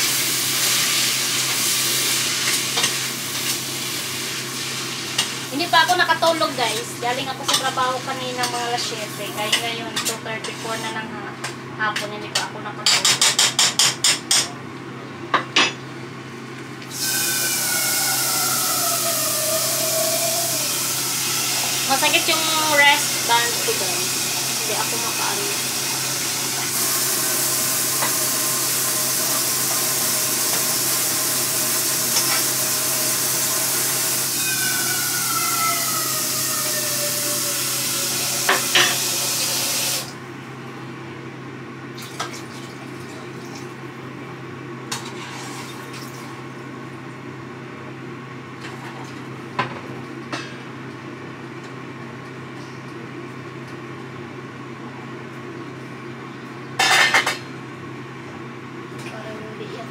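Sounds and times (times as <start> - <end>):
dishes and utensils clinking: 38.4 - 39.1, 56.8 - 57.4.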